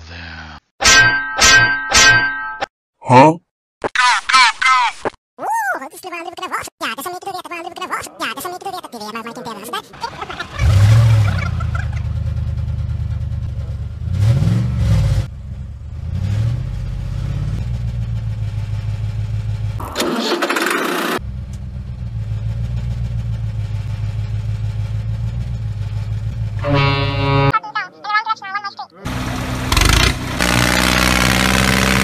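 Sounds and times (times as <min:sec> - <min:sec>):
truck engine revving: 0:10.0 - 0:27.5, 0:29.1 - 0:32.0.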